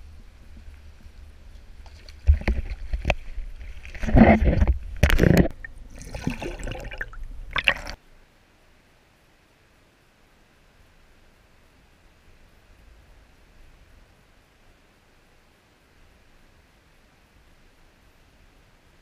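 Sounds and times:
steady low rumble: 0.0 - 8.0
water splashing: 0.0 - 8.0.

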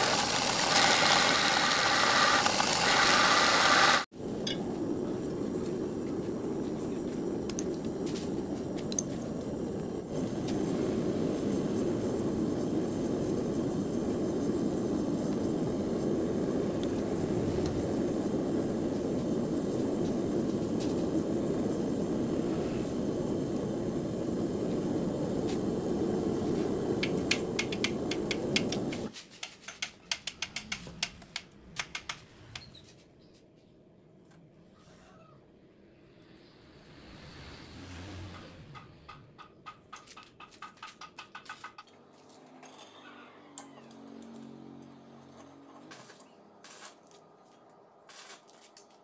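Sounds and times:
gas burner rushing: 0.0 - 29.1, 36.2 - 39.6.

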